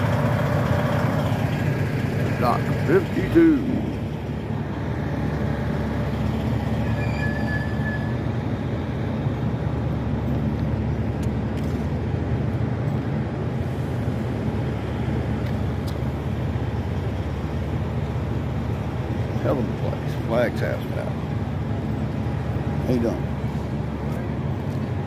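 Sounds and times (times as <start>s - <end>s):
diesel truck engine idling: 0.0s - 25.0s.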